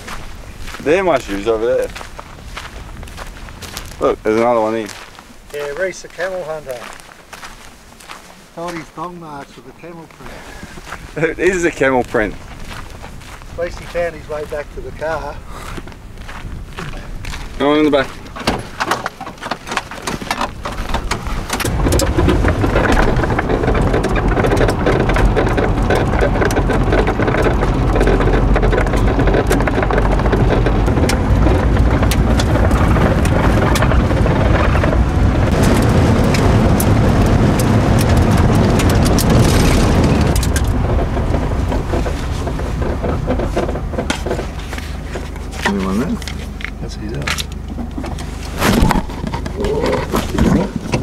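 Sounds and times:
car engine and road rumble: 0.0 - 51.0
fine rattle: 16.9 - 51.0.

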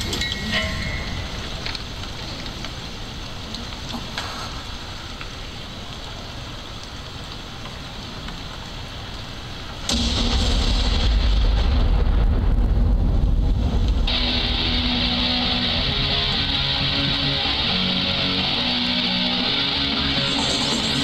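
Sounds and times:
steady hiss with low rumble: 0.0 - 21.0
sudden loud burst: 9.9 - 16.5
music over hall speakers: 14.1 - 21.0.

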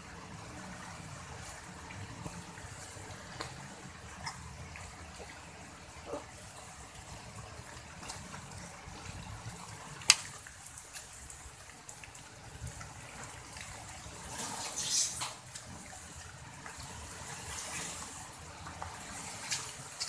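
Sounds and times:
water trickling and dripping: 0.0 - 20.0
hissing rustle: 14.1 - 18.2.

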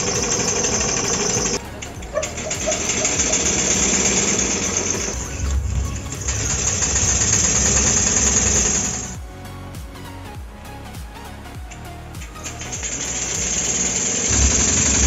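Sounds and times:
small steam engine running: 0.0 - 9.2, 12.8 - 15.0.

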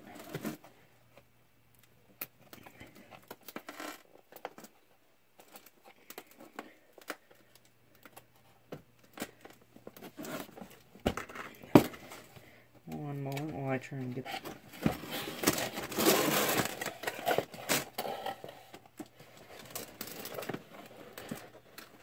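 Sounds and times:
plastic wrap crinkling: 13.0 - 22.0.

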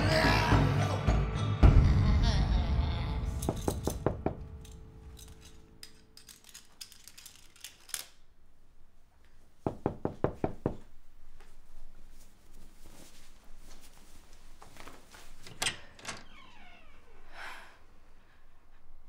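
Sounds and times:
belt buckle clicking: 4.6 - 8.3.

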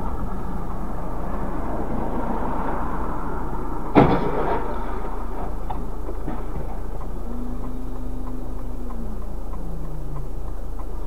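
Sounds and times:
vehicle and road noise: 0.0 - 11.0
sharp thump: 3.9 - 6.9.

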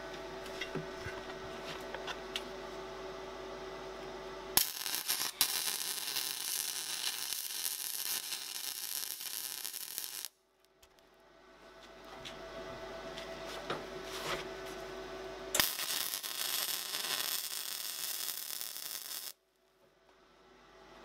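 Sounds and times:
welder humming: 4.0 - 10.4, 11.8 - 19.4
welding arc crackling: 4.6 - 10.4, 15.6 - 19.4.

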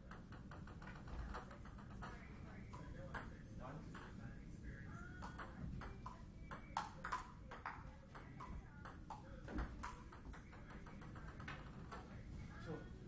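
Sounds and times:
table tennis ball pings: 5.1 - 12.2.

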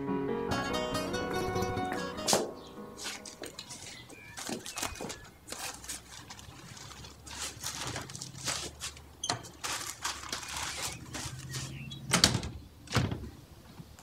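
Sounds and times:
newspaper crinkling and rustling: 3.0 - 12.1.

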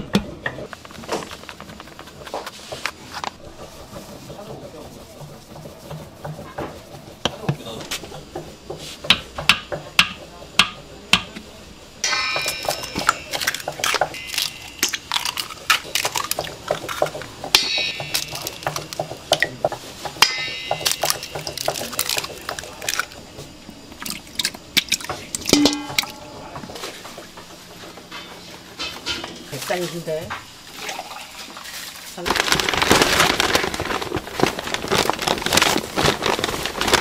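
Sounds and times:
utensils clinking on steel bowls: 12.0 - 27.1.

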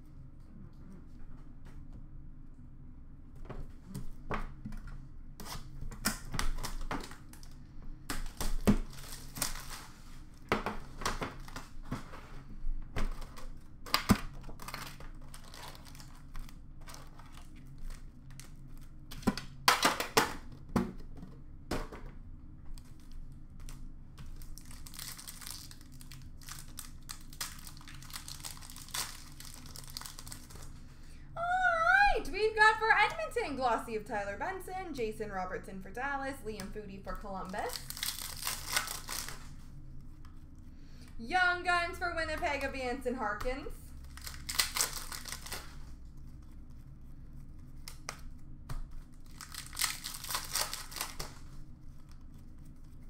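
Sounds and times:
wrappers crinkling and tearing: 8.2 - 11.9, 14.3 - 19.0, 22.7 - 30.8, 37.5 - 40.2, 43.9 - 46.7, 47.3 - 53.0.

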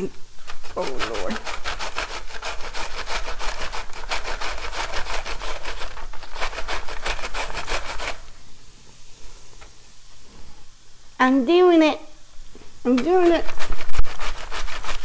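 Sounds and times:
cabbage scraping on mandoline slicer: 0.4 - 8.3.

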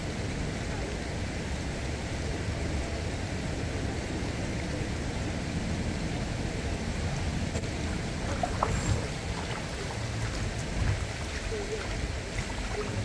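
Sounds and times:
wind: 0.0 - 13.0
river water rushing: 4.9 - 13.0.

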